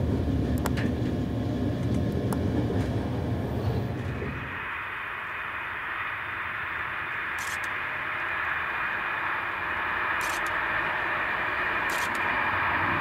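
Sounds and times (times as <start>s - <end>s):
train rushing hiss: 3.2s - 13.0s.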